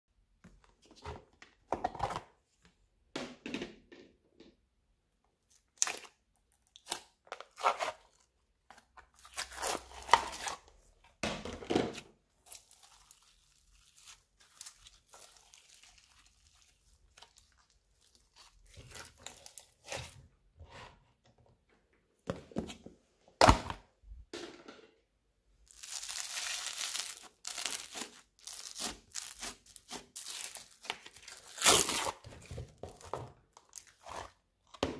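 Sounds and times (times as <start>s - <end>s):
slime squelching and crackling: 12.4s - 20.2s, 25.7s - 32.3s.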